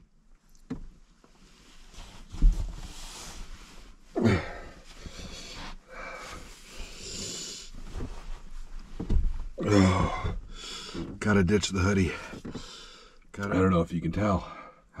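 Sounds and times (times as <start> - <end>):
man breathing hard through mouth: 4.2 - 7.8, 9.7 - 11.1, 12.2 - 13.3.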